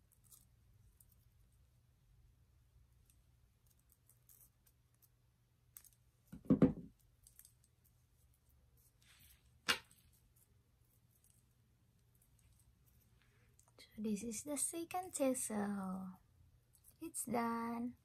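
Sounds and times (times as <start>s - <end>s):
pliers knocking on wooden table: 6.3s - 6.9s.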